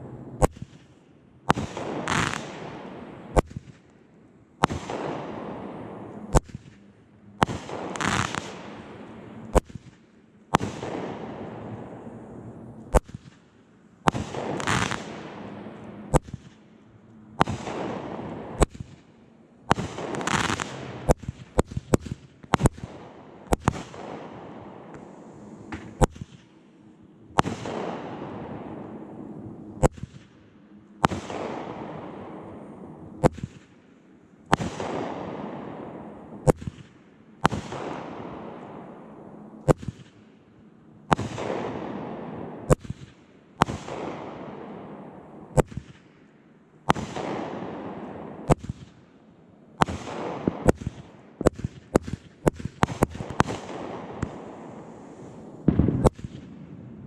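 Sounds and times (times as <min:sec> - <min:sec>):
fireworks sharp reports: 0:00.0 - 0:03.8, 0:04.6 - 0:26.6, 0:27.3 - 0:30.4, 0:41.1 - 0:46.1, 0:46.8 - 0:48.9, 0:49.8 - 0:57.0
falling hiss of fireworks: 0:00.0 - 0:04.0, 0:04.6 - 0:16.8, 0:17.4 - 0:26.6, 0:34.5 - 0:38.6, 0:49.8 - 0:56.6.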